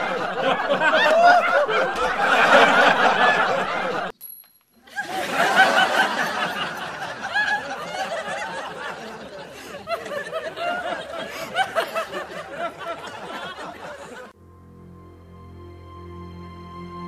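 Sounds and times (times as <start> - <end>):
people laughing and giggling: 0.0 - 4.1, 4.8 - 14.4
quiet music: 14.4 - 17.0.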